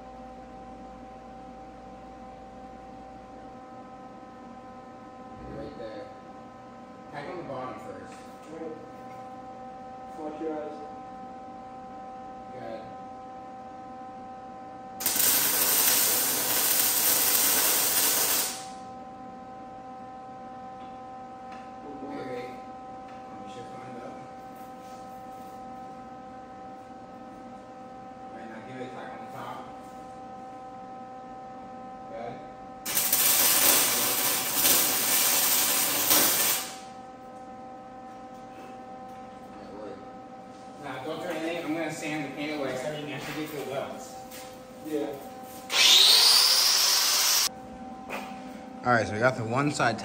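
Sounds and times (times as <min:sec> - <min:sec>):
welding arc crackling hiss: 0:15.0 - 0:18.8, 0:32.9 - 0:36.9, 0:45.7 - 0:47.5.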